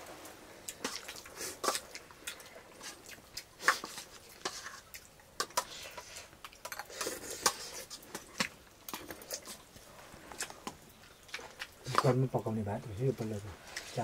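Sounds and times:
chewing and lip smacks: 0:00.7 - 0:05.7.

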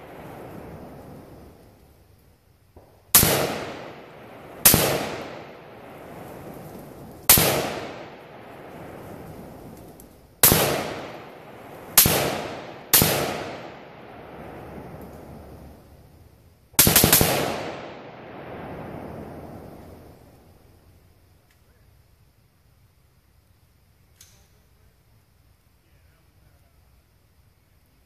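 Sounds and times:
rifle shots echoing: 0:03.1 - 0:09.8, 0:10.4 - 0:15.8, 0:16.8 - 0:20.1.

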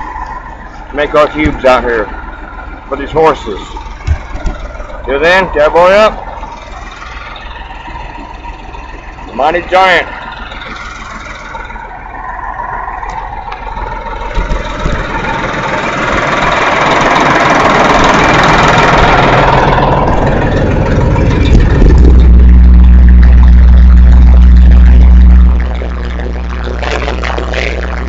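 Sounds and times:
hay grinder engine droning: 0:00.0 - 0:28.0
loud steady low hum: 0:00.0 - 0:28.0
dense rushing noise: 0:09.4 - 0:28.0.

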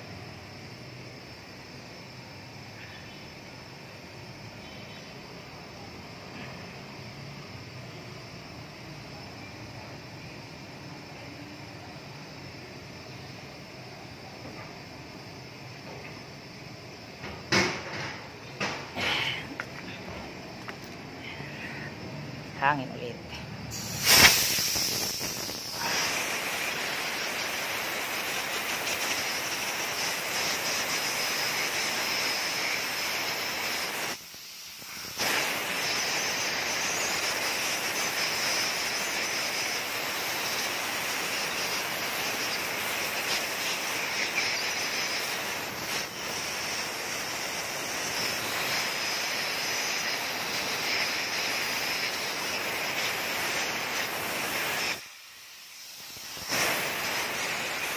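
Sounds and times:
compressed air blow gun hissing: 0:18.5 - 0:22.2, 0:23.3 - 0:57.9.

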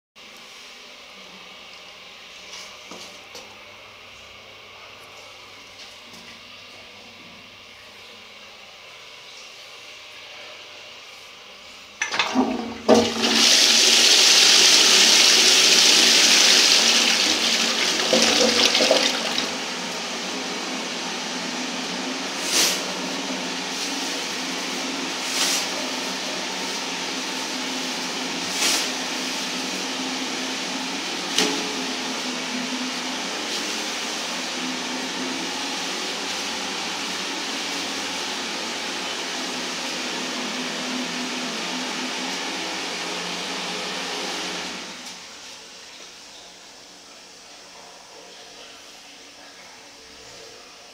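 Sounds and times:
toilet flush water rushing: 0:12.0 - 0:20.1.

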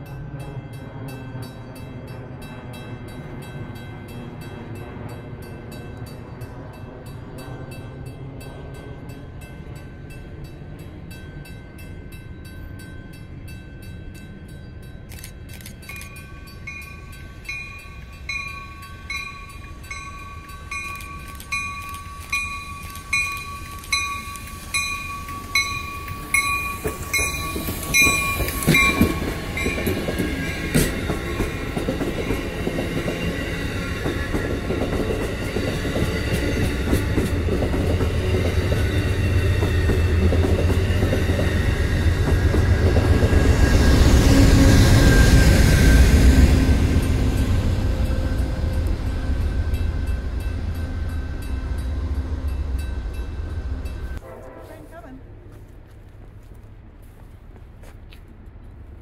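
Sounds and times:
crossing bell ringing: 0:00.0 - 0:55.2
passing train rumble: 0:00.0 - 0:59.0
train wheel clatter: 0:15.1 - 0:54.2.

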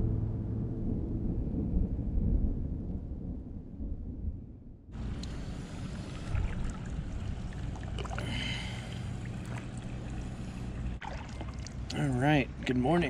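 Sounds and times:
low steady hum: 0:00.0 - 0:13.0
paddle blades dipping and dripping: 0:05.0 - 0:13.0
water lapping at hull: 0:05.0 - 0:13.0.

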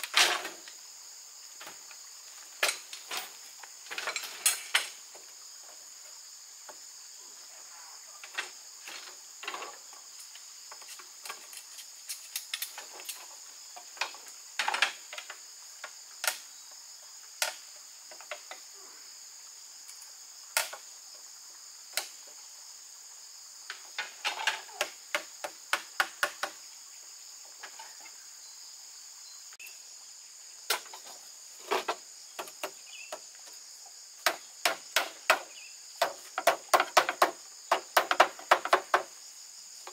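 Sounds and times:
insect chorus: 0:00.0 - 0:39.9
sharp knocks and taps: 0:34.2 - 0:39.1.

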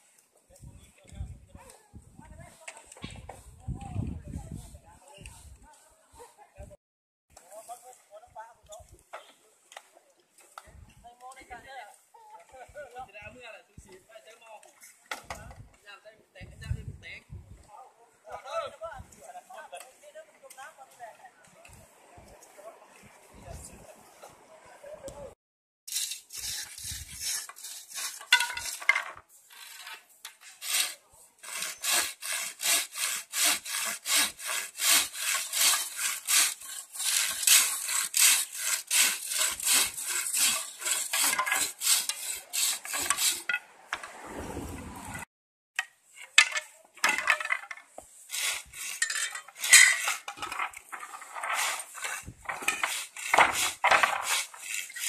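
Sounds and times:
hand saw cutting bamboo: 0:25.9 - 0:28.9, 0:29.5 - 0:43.6, 0:48.2 - 0:55.0.

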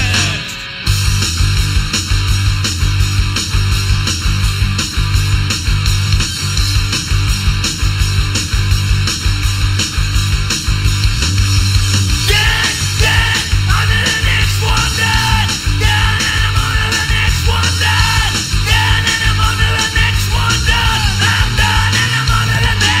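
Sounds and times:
man screaming rock vocals: 0:00.0 - 0:00.8, 0:12.2 - 0:23.0
loud rock music: 0:00.0 - 0:23.0.

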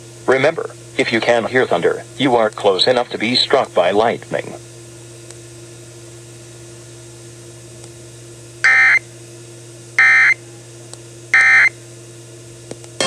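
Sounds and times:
low hum of dead air: 0:00.0 - 0:13.0
alert data bursts: 0:08.6 - 0:09.0, 0:10.0 - 0:10.4, 0:11.4 - 0:11.7.

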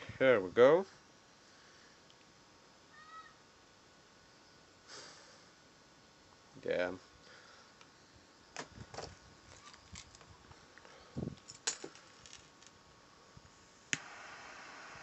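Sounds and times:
steady hiss: 0:00.0 - 0:15.0
probe wire clicks and rattles: 0:08.6 - 0:12.8.

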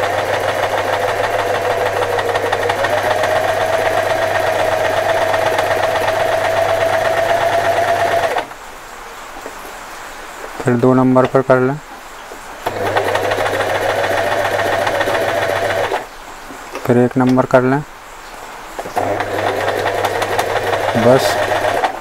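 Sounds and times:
sewing machine running: 0:00.0 - 0:08.5, 0:12.6 - 0:16.1, 0:18.8 - 0:22.0.

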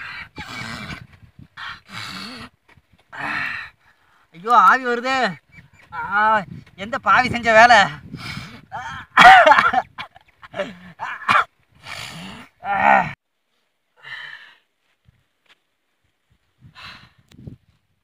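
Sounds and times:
faint breaths: 0:00.0 - 0:04.4, 0:13.4 - 0:15.1, 0:16.6 - 0:17.4
man groaning and crying out: 0:08.6 - 0:09.8, 0:10.5 - 0:11.3, 0:12.0 - 0:13.2.

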